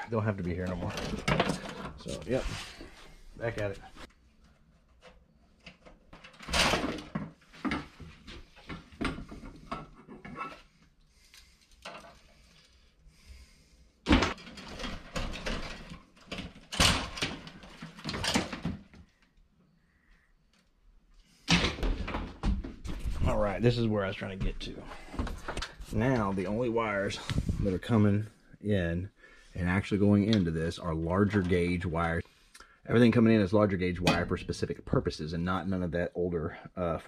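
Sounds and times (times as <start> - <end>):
cable rustling and scraping: 0.3 - 6.5, 7.2 - 13.6.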